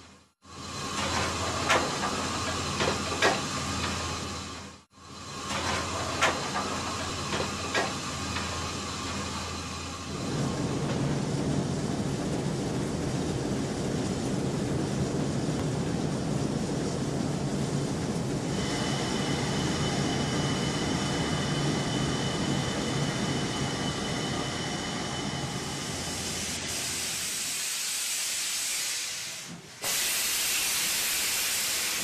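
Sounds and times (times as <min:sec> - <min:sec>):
steam locomotive rumble: 0:00.0 - 0:32.0
steam hissing: 0:00.4 - 0:12.0, 0:18.3 - 0:32.0.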